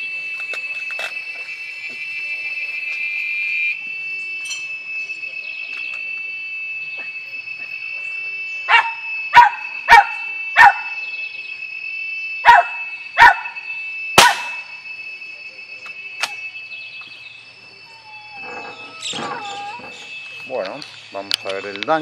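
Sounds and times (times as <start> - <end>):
dog barking: 8.7 - 10.9, 12.4 - 13.5.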